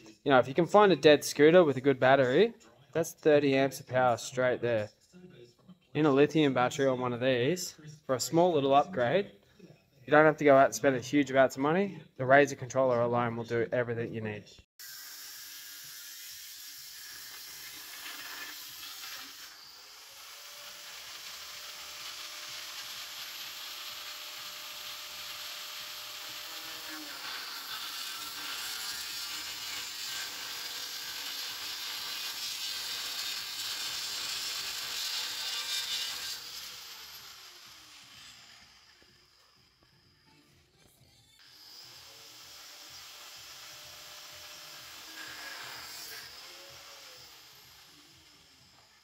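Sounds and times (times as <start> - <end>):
angle grinder cutting steel: 14.8 - 40.4, 41.4 - 49.0.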